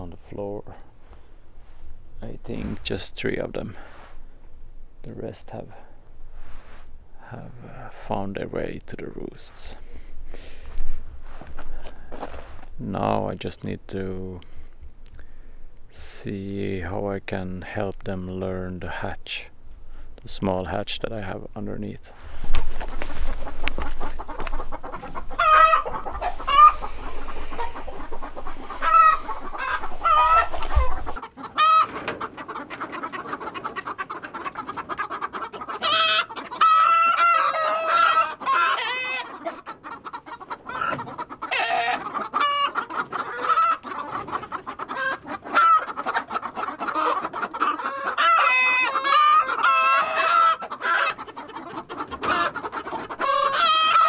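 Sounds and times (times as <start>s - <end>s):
chickens clucking: 0.0s - 54.0s.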